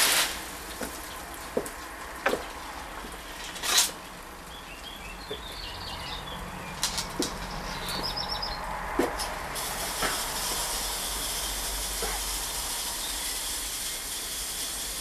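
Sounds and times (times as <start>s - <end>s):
small bird twittering: 7.6s - 8.6s
hose spray nozzle hissing: 9.6s - 15.0s.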